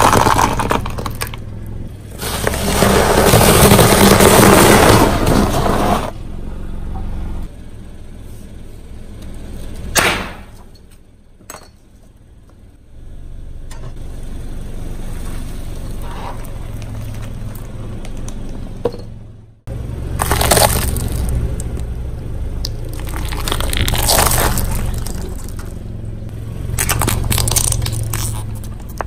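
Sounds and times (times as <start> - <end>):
tyre crushing bricks: 0.0 - 1.5, 2.2 - 6.1, 20.2 - 21.3, 22.9 - 25.8
car rolling rumble: 0.0 - 29.0
sharp bang: 9.9 - 10.6.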